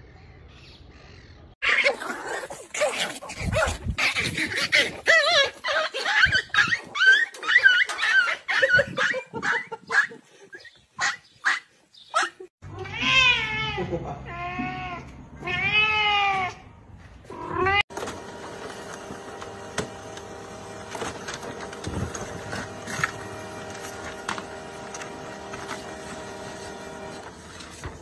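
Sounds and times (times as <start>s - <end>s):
cat meowing loudly: 12.7s - 16.6s.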